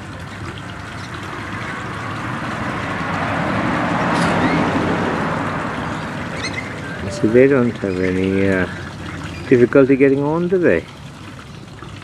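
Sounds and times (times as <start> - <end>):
vehicle driving past: 0.2 - 9.4.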